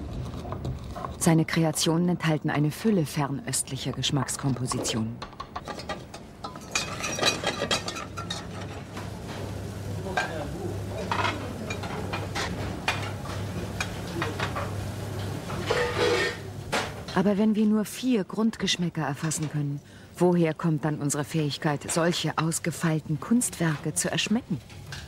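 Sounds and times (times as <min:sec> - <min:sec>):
pots and pans clinking: 0:04.6 - 0:09.4, 0:10.0 - 0:17.2.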